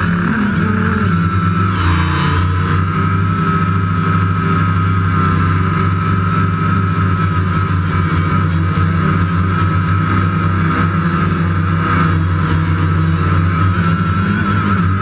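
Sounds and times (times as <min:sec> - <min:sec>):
drone propellers whirring: 0:00.0 - 0:15.0.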